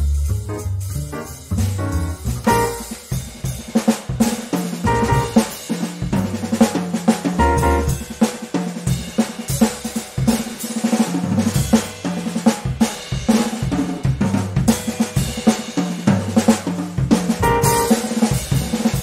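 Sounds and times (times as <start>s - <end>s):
bass line: 0.0s - 3.0s, 4.8s - 5.4s, 7.4s - 8.0s, 17.4s - 18.0s
drum kit beat: 0.0s - 19.0s.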